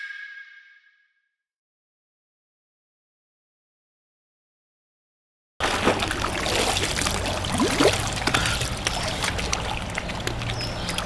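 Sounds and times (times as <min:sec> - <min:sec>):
pool water sloshing: 0:05.6 - 0:11.0
small splashes and drips: 0:05.6 - 0:11.0.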